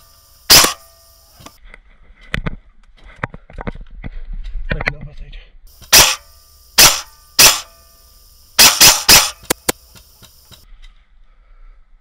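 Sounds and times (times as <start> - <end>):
steady high hiss: 0.0 - 1.6, 5.7 - 11.6
airsoft gun pops: 8.6 - 10.6.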